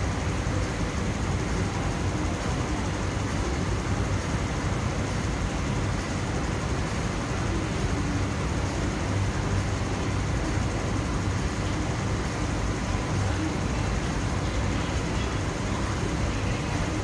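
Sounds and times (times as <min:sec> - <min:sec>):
train equipment hum: 0:00.0 - 0:17.0
ventilation air rush: 0:00.0 - 0:17.0.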